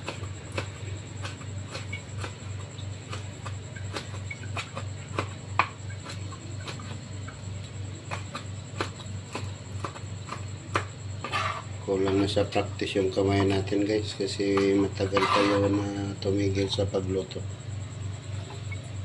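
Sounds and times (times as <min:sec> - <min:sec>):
knife chopping on cutting board: 0:00.0 - 0:02.5, 0:08.0 - 0:12.3, 0:14.4 - 0:15.8.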